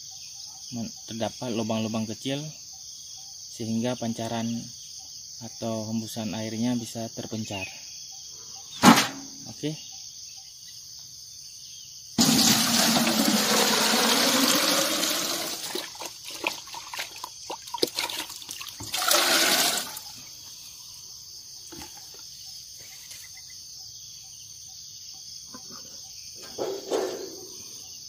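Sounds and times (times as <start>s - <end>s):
drips and splashes: 12.2s - 20.2s
liquid pouring into metal can: 12.2s - 20.2s.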